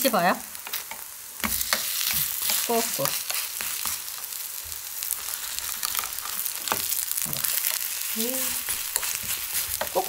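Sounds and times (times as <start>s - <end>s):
pancakes sizzling in hot oil: 0.0s - 10.0s
spatula scraping and tapping: 0.7s - 4.0s, 8.6s - 10.0s.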